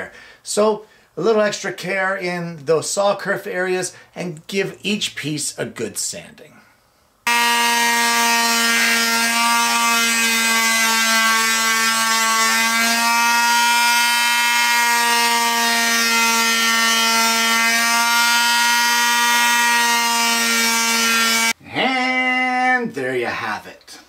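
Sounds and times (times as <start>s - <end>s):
electric power sander on wood: 7.3s - 21.6s.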